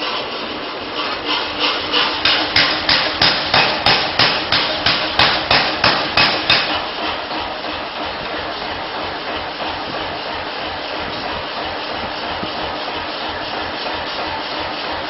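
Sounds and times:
steady machine noise: 0.0s - 15.0s
hammer blows on hot steel: 2.2s - 6.9s.

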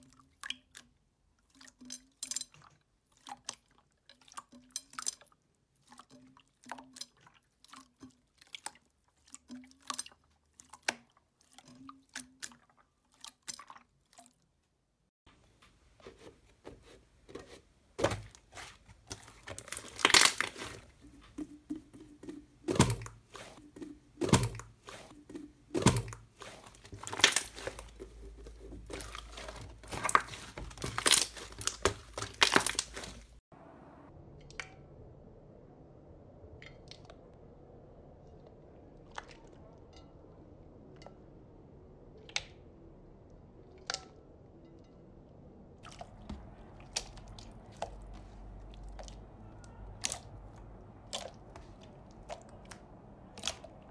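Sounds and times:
hands squelching slime: 0.0s - 14.6s, 15.5s - 33.4s, 45.8s - 53.9s
slime popping and crackling: 18.0s - 33.4s.

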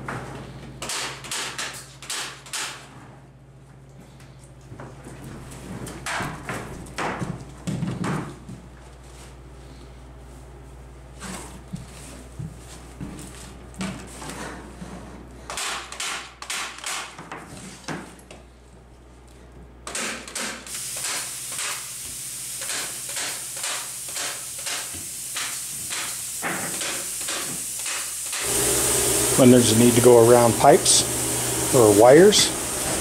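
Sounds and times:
steady hiss: 20.7s - 33.0s.

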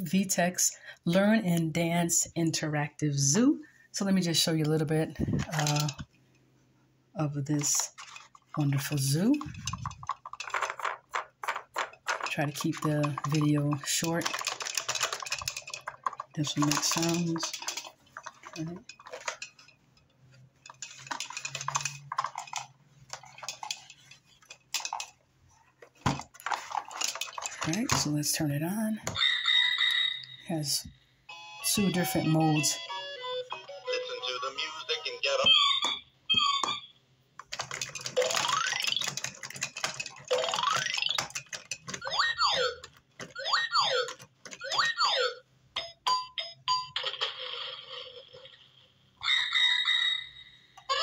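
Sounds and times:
plastic toy clicking and clattering: 4.6s - 6.1s, 7.5s - 25.2s, 25.8s - 30.0s, 37.4s - 45.0s.

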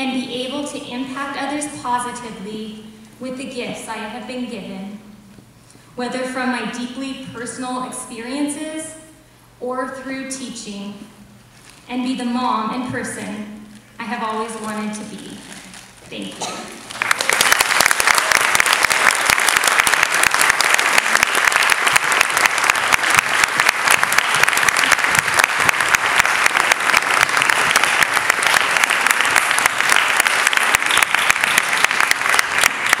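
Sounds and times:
audience applause: 16.8s - 33.0s.

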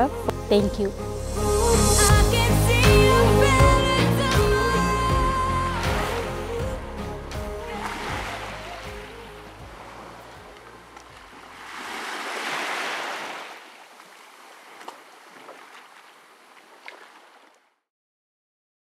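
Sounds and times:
small waves washing on shore: 7.7s - 17.8s.

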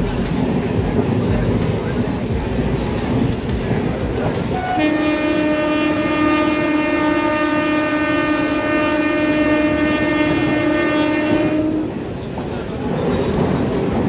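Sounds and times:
moving train rumble: 0.0s - 14.0s
train horn blast: 4.5s - 12.2s.

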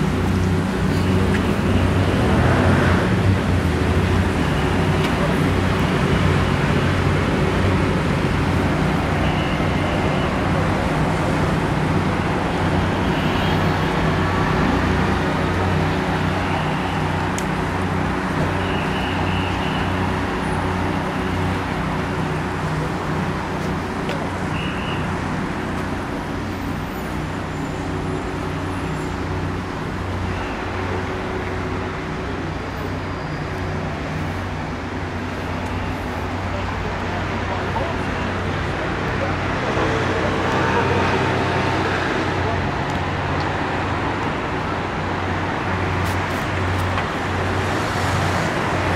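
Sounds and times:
road traffic: 0.0s - 48.9s.

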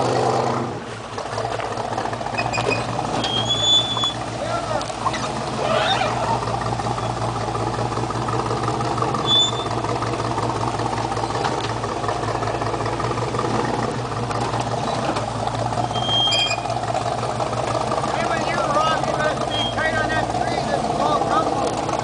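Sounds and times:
truck engine running at low revs: 0.0s - 22.0s
short high squeaks: 2.3s - 4.2s, 5.0s - 6.4s, 9.2s - 9.8s, 15.8s - 16.8s, 19.5s - 19.9s.

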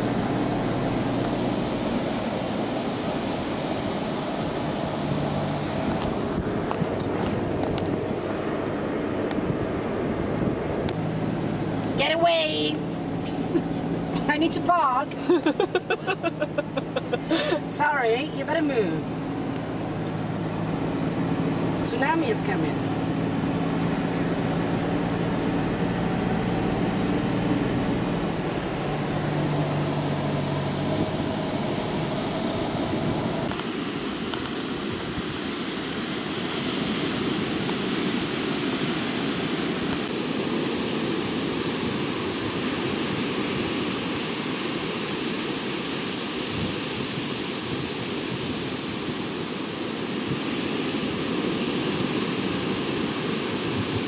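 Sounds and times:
car engine driving on sand: 0.0s - 54.0s
surf breaking on shore: 0.0s - 54.0s.

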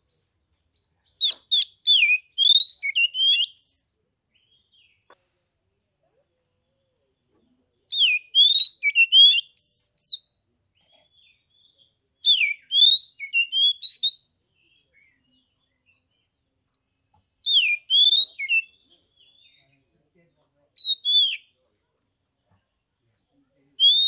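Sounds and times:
bird singing whistled notes: 0.0s - 5.1s, 7.9s - 10.4s, 11.1s - 16.3s, 17.4s - 20.0s, 20.8s - 21.6s, 23.8s - 24.0s.

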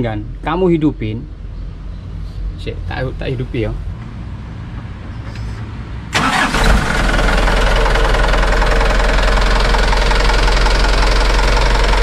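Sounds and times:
diesel engine starting and idling: 6.1s - 12.0s.

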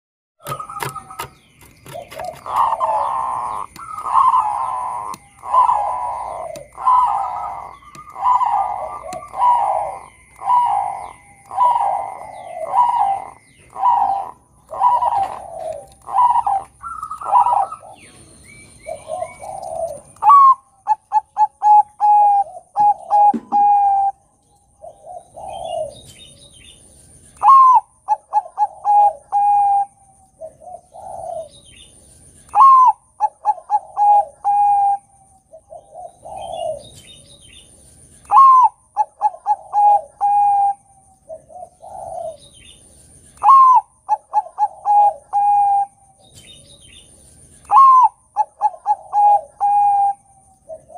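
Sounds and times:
dove cooing: 0.4s - 46.6s, 47.6s - 50.9s
short clipped bird notes: 23.2s - 24.0s.

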